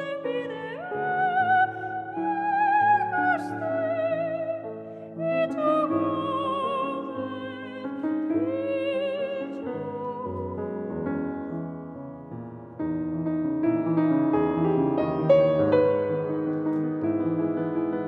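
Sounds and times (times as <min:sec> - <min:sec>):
woman singing operatically: 0:00.0 - 0:10.6
grand piano: 0:00.0 - 0:18.0.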